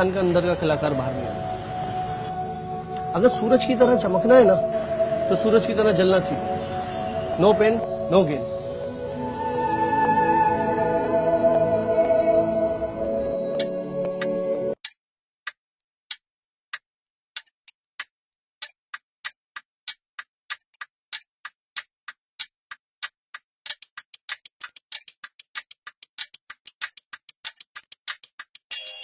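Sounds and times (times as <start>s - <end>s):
computer keyboard typing: 19.8s - 28.9s.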